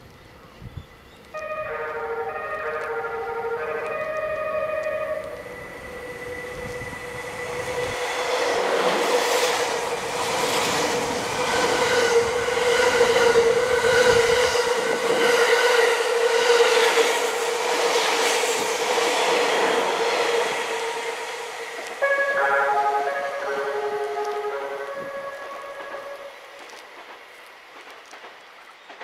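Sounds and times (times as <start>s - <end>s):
train rushing past: 1.4s - 29.0s
steady tone: 2.2s - 14.8s.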